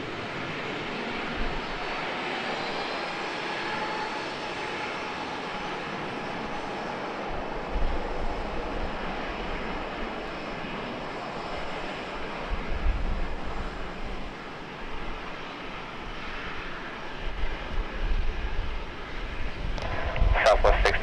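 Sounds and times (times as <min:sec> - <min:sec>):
low rumble: 0:19.7 - 0:21.0
jet engines hissing: 0:19.8 - 0:21.0.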